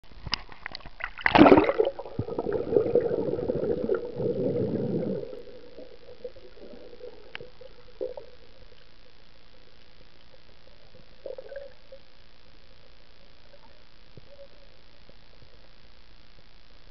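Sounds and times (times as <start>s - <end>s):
underwater hum: 0.0s - 16.9s
muffled rushing and gurgling water: 0.7s - 8.8s
water splash: 1.0s - 5.2s.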